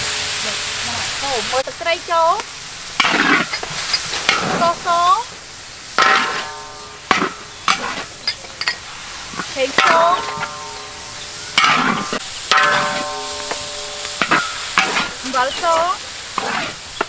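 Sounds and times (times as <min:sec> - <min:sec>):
meat sizzling: 0:00.0 - 0:17.0
wok ringing: 0:00.0 - 0:17.0
metal spatula scraping a wok: 0:02.9 - 0:05.2, 0:05.8 - 0:17.0.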